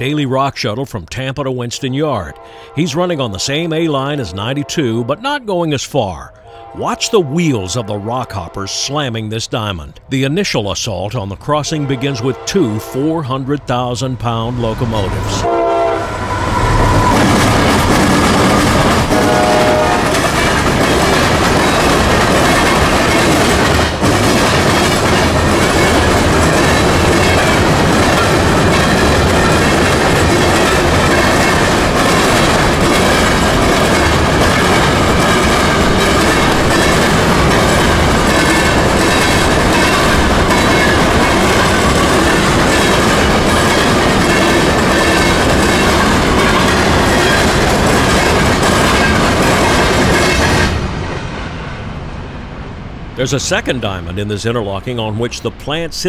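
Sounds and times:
train wheels clattering over crossing: 14.3 - 51.0.

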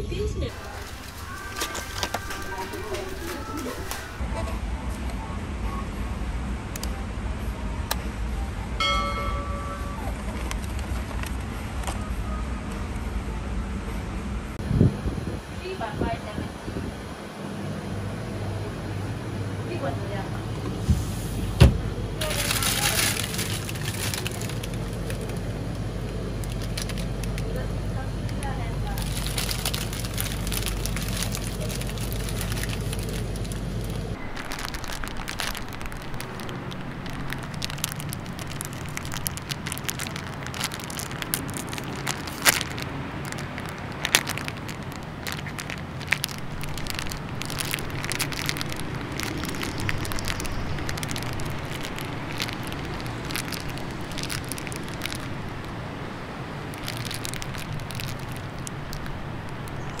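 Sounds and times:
low steady hum: 0.0 - 60.0
plastic wrapper crinkling and tearing: 0.5 - 4.2, 22.2 - 27.7, 28.3 - 60.0.

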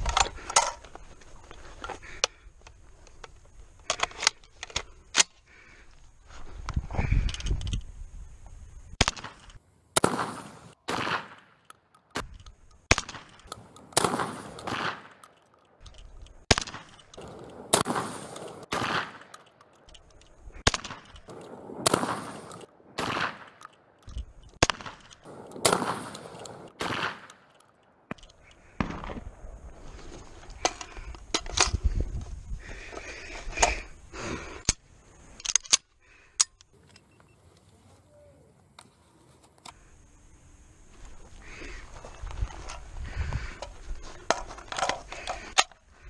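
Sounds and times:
shotgun shots with echo: 10.0 - 11.5, 14.0 - 15.1, 17.7 - 19.3, 21.8 - 23.5, 24.6 - 27.3.

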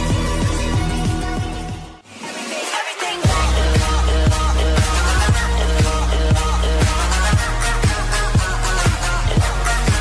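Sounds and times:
heavy bass line: 0.0 - 2.0, 3.3 - 10.0
electronic dance track: 0.0 - 10.0
kick drum: 3.3 - 10.0.

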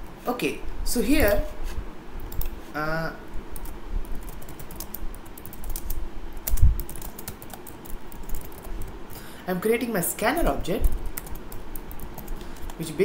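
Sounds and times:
typing on computer keyboard: 3.6 - 8.8, 11.2 - 12.8.

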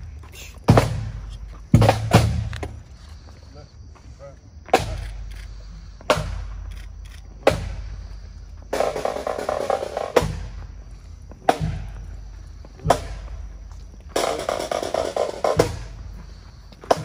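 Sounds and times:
heavy drum strokes: 8.7 - 10.6.

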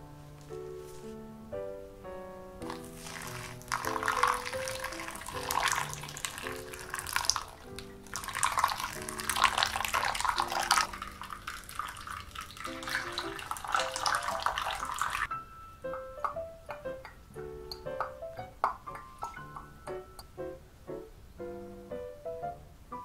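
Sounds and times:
soft background music: 0.0 - 23.0
water poured onto coffee: 2.6 - 15.3.

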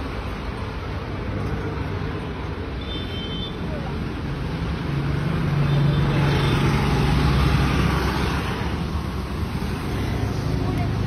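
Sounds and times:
road traffic noise: 0.0 - 11.0.

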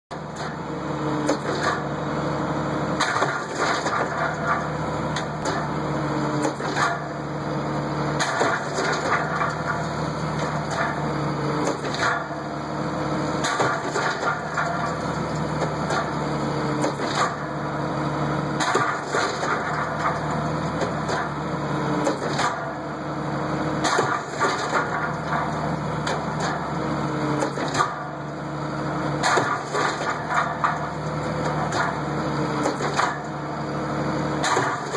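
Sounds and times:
machine engine and hydraulics: 0.1 - 34.9
sharp metal clanks and cracks: 3.0 - 5.7, 8.2 - 11.0, 13.4 - 16.2, 18.6 - 21.3, 22.0 - 22.7, 23.8 - 26.7, 27.4 - 28.1, 29.2 - 32.0, 32.6 - 33.4, 34.4 - 34.9.

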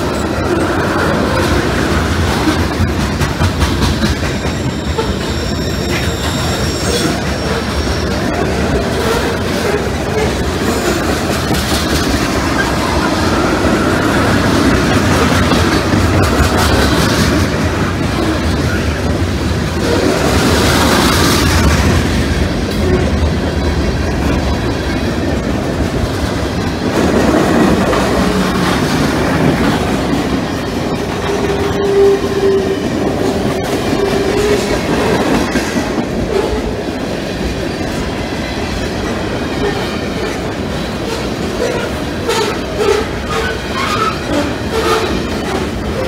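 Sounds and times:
train wheels clacking over rail joints: 0.0 - 46.0
brief squealing tone: 4.5 - 8.2.

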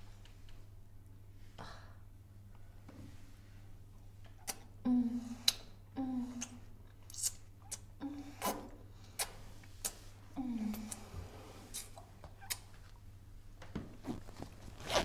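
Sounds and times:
woman moaning: 10.4 - 11.0.

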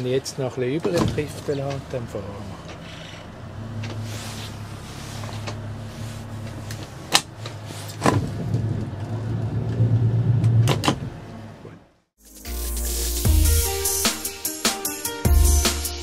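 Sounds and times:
motorboat engine humming: 1.2 - 11.6.

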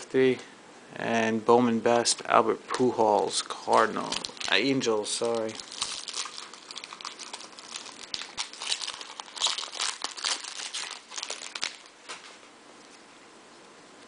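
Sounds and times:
foil wrapper crinkling: 2.8 - 12.3.

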